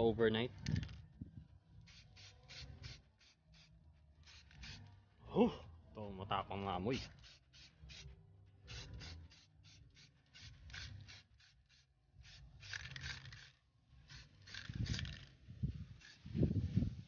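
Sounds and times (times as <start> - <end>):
spray can hissing in bursts: 1.9 - 4.9, 6.9 - 17.0.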